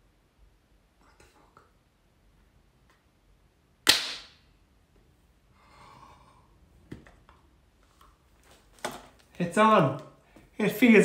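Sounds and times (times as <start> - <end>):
person gasping: 5.5 - 6.6.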